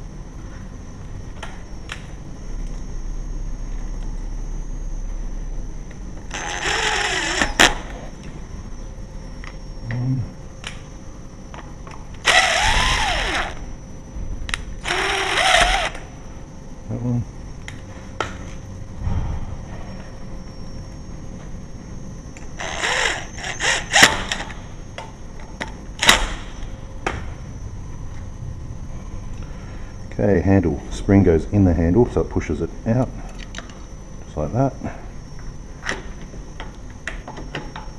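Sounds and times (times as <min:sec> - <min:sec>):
cordless drill motor whine: 0:06.2 - 0:08.2, 0:12.1 - 0:13.8, 0:14.8 - 0:16.3, 0:22.4 - 0:24.8.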